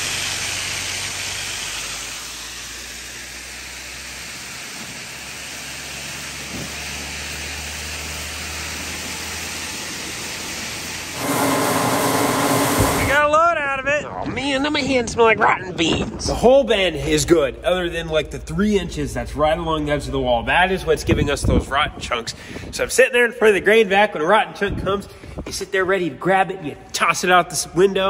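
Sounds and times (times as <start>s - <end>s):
hose sucking grain: 0.0s - 13.3s
grain vacuum machine humming: 10.8s - 13.3s.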